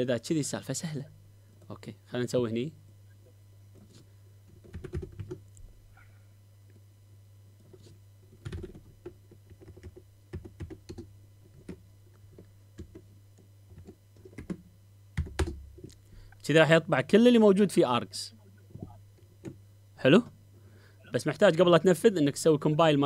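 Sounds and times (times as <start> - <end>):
low hum: 0.0 - 22.7
keyboard typing: 4.6 - 5.4, 8.4 - 11.8, 12.8 - 13.0, 13.7 - 14.6, 15.2 - 15.6.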